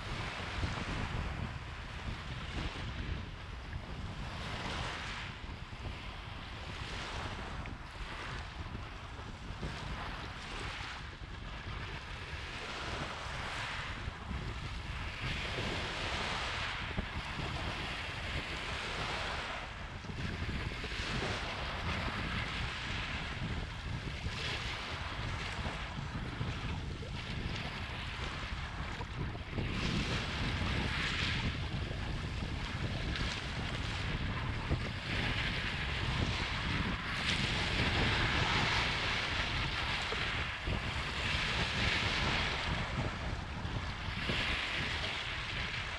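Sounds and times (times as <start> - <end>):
wind rumble on microphone: 0.0 - 45.9
waves washing over pebbles: 12.4 - 45.9.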